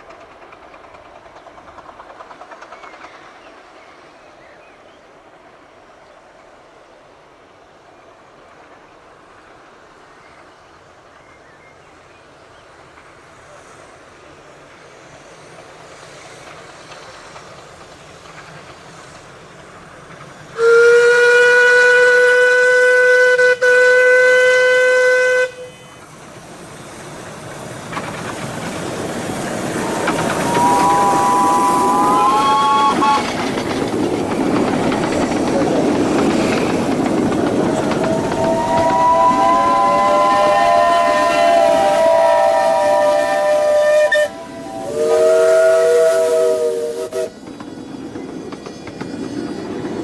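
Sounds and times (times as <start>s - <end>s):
train running noise: 0.0s - 50.0s
steam locomotive whistle: 20.6s - 26.0s, 29.6s - 33.5s, 37.7s - 47.5s.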